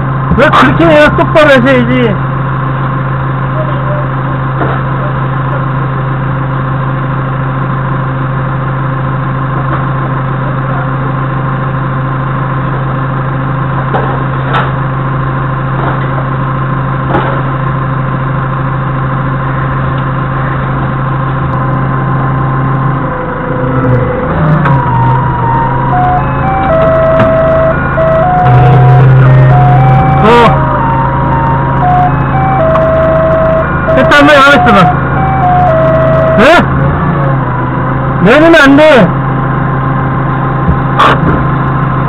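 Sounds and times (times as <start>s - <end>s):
forklift engine idling: 0.0s - 42.0s
jingly electronic tune: 24.5s - 36.7s.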